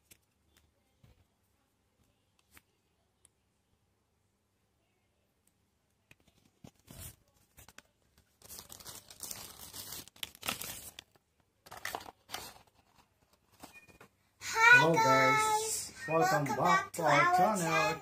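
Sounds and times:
paper and plastic tearing: 6.7 - 13.7
packaging rustling: 6.7 - 14.1.

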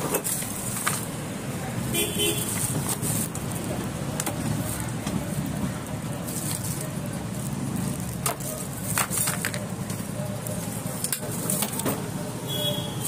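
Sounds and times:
plastic wrapping crinkling: 2.3 - 11.8.

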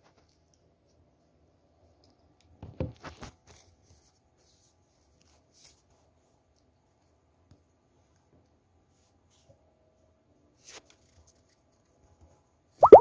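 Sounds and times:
kitten rustling on floor: 2.8 - 6.5.

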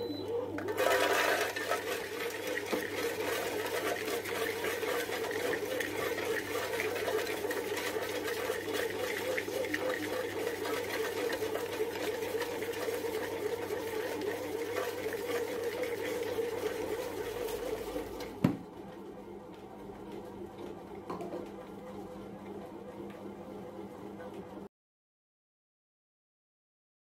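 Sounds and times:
bread machine motor humming: 0.0 - 24.2.

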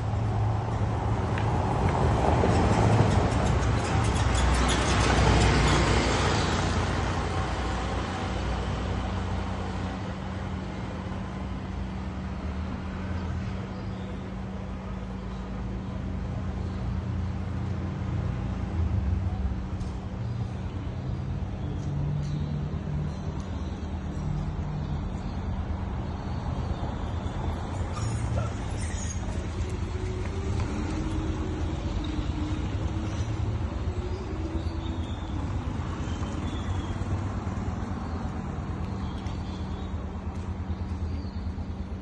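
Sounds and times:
steady low traffic hum: 0.0 - 42.0
vehicle passing close by: 27.2 - 38.8.

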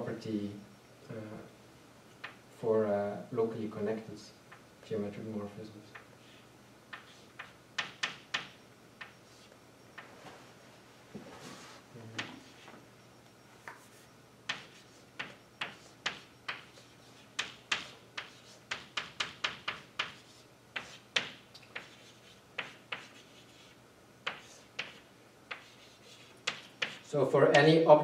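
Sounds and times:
faint low hum: 0.0 - 28.0
chalk tapping and scratching: 6.0 - 9.5, 12.2 - 12.8, 13.6 - 27.7.

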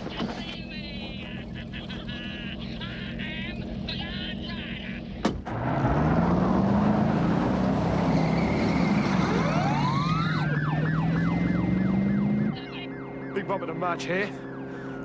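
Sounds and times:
car engine running hard: 0.0 - 15.0
police siren wailing: 5.9 - 15.0.

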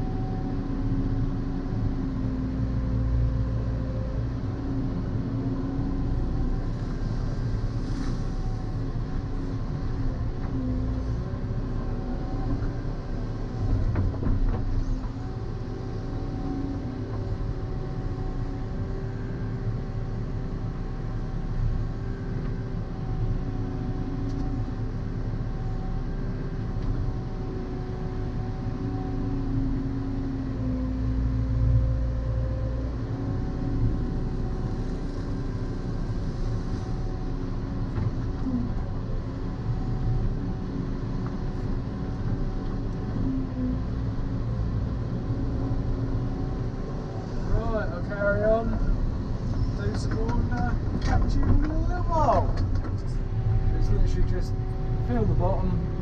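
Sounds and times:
excavator engine and hydraulics: 0.0 - 56.0.

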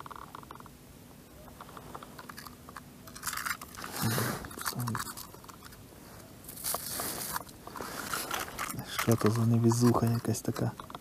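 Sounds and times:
fishing rod handling rustle: 1.6 - 11.0.

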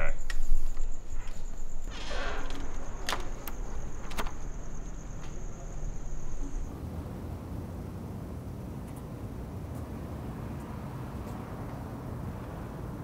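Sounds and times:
cricket trilling: 0.0 - 6.7
city traffic hum: 0.0 - 13.0
sharp clicks and rustles: 0.2 - 6.7.

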